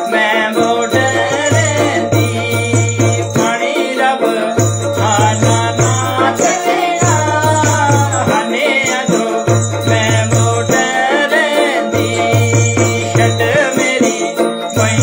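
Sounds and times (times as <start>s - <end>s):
hand drum rhythm: 0.0s - 15.0s
man and woman singing: 0.0s - 15.0s
metallic jingling: 0.0s - 15.0s.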